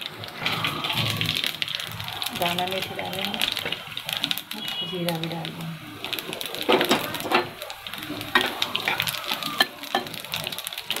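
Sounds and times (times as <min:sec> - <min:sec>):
sharp crackles and pops: 0:00.0 - 0:11.0
spices sizzling in hot oil: 0:00.0 - 0:11.0.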